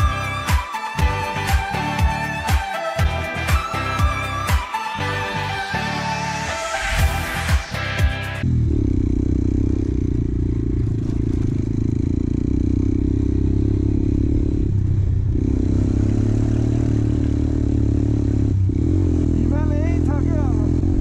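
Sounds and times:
motorcycle engine running: 7.0s - 21.0s.

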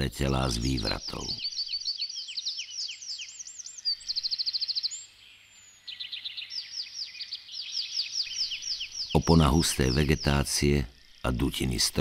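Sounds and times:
bird trill: 0.0s - 12.0s
songbirds chirping: 0.0s - 12.0s.

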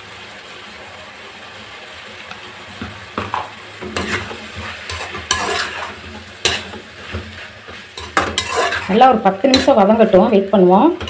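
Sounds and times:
food sizzling in oil: 0.0s - 11.0s
metal spoon scraping pan: 3.8s - 10.3s.

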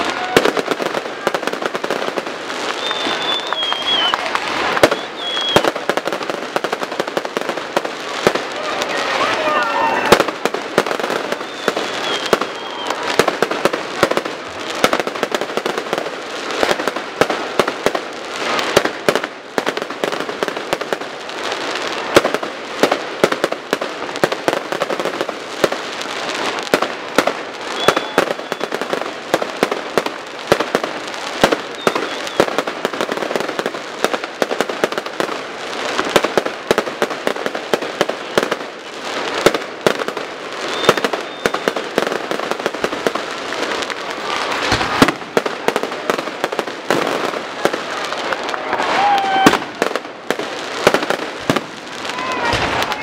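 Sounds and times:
fireworks bangs and crackling: 0.0s - 53.0s
high firework whistles: 2.0s - 6.0s, 8.1s - 14.2s, 27.6s - 29.0s, 31.4s - 32.7s, 40.6s - 43.0s, 48.6s - 49.9s.

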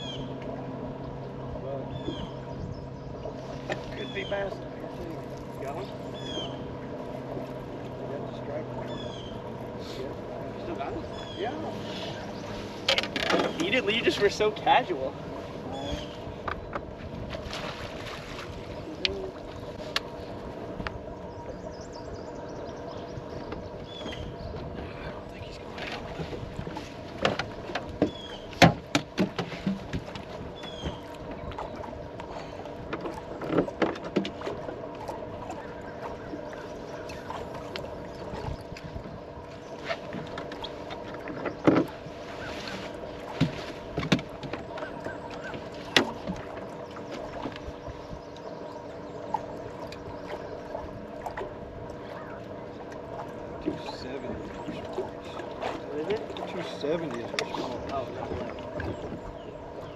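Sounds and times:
water lapping at hull: 0.0s - 59.9s
knocks on boat deck: 27.1s - 31.6s, 40.1s - 42.0s, 43.3s - 47.6s.

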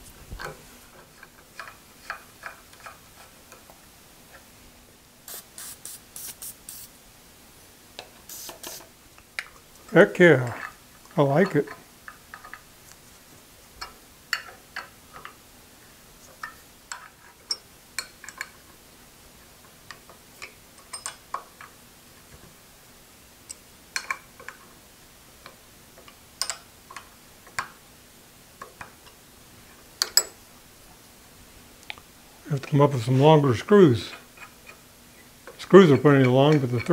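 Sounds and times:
faint steady hum: 0.0s - 36.9s
metallic tool clicks and taps: 25.4s - 27.7s, 30.0s - 30.3s.

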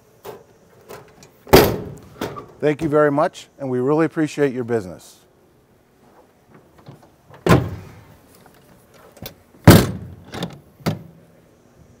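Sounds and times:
truck cap door slamming: 0.3s - 2.6s, 6.8s - 8.0s, 9.6s - 11.2s
latch handle clunks: 6.8s - 7.9s, 9.2s - 11.1s.

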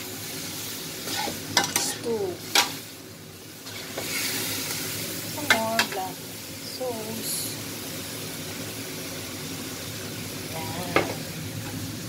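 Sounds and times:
meat sizzling in a wok: 0.0s - 12.0s
metal spoon scraping a pan: 1.0s - 2.8s, 3.6s - 4.8s.

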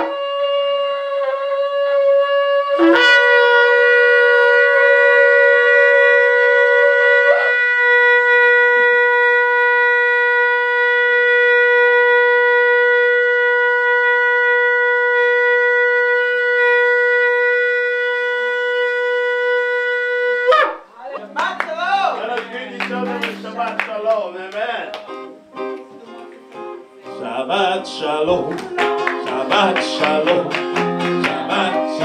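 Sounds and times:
shofars blowing: 2.8s - 14.4s, 15.0s - 25.7s.

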